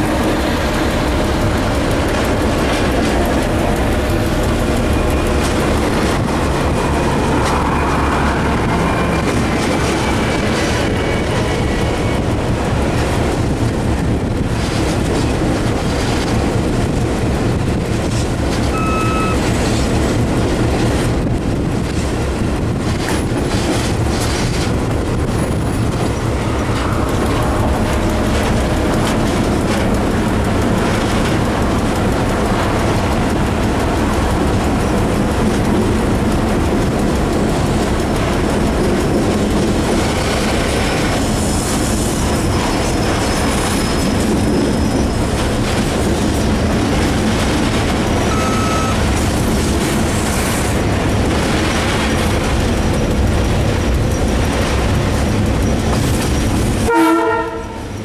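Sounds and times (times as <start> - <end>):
diesel locomotive engine running: 0.0 - 58.0
wheels rolling over rail joints: 0.0 - 58.0
short beep: 18.7 - 19.4, 48.3 - 49.0.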